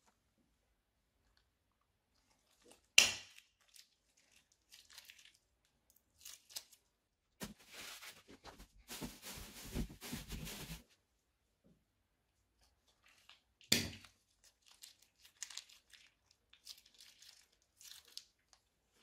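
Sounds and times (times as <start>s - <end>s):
plastic bag crinkling: 7.4s - 10.8s, 14.4s - 18.5s.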